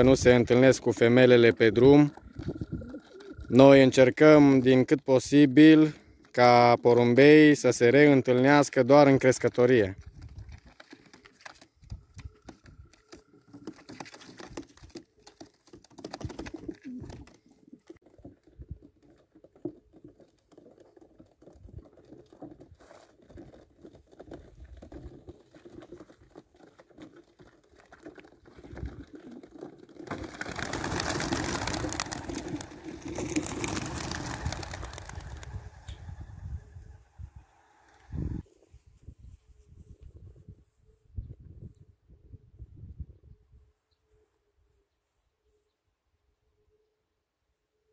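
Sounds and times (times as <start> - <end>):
pigeons cooing: 1.6 - 3.8, 12.2 - 18.0
flock of wings clattering: 10.0 - 17.6, 28.5 - 36.8.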